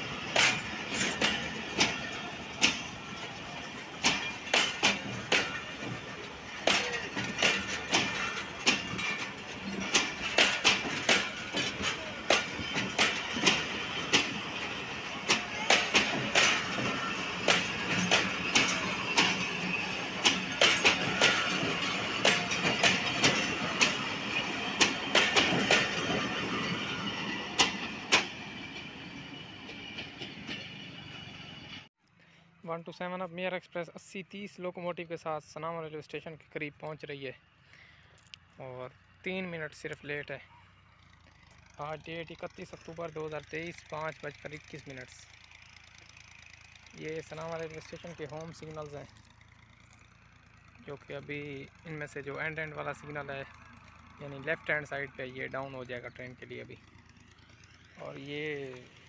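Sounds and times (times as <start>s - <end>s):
train running gear rumble: 0.0s - 31.9s, 38.2s - 59.0s
train wheels clacking: 0.0s - 31.9s, 42.4s - 59.0s.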